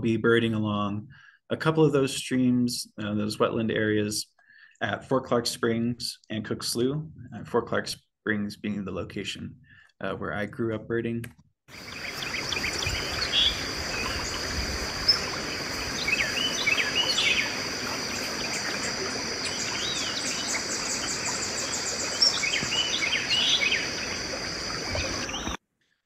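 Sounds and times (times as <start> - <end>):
birds chirping: 11.7 - 25.6
background hiss: 11.8 - 25.6.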